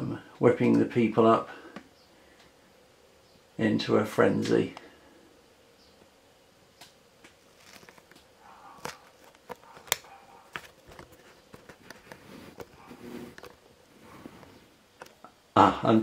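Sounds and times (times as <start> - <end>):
camera handling clicks and rustles: 7.5 - 8.2, 8.8 - 13.6.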